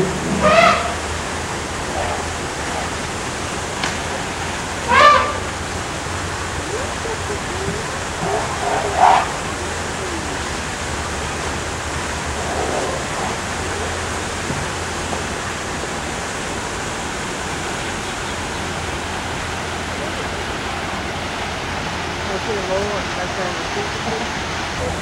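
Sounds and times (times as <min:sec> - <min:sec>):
faint voices: 0:00.0 - 0:16.0, 0:17.9 - 0:25.0
steady rushing noise: 0:00.0 - 0:25.0.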